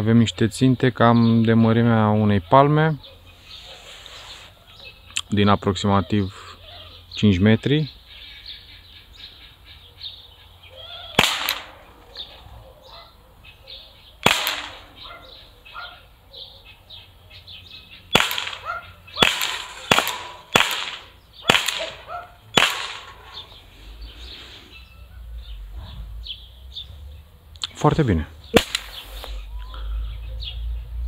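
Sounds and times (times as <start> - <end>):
birds chirping: 0.0 - 31.0
air pistol shots: 11.1 - 12.4, 14.2 - 15.2, 18.1 - 23.6, 28.5 - 29.4.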